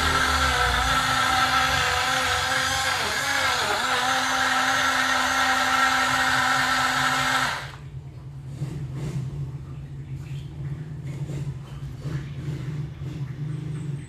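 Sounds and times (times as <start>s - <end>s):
blender motor running: 0.0s - 7.8s.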